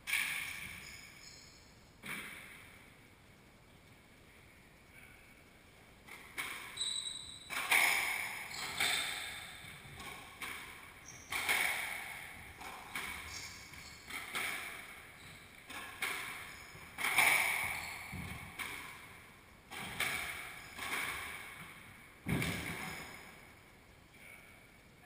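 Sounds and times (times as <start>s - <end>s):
squash ball hits: 7.5s - 13.3s, 14.1s - 15.0s, 15.6s - 19.0s, 19.7s - 23.0s.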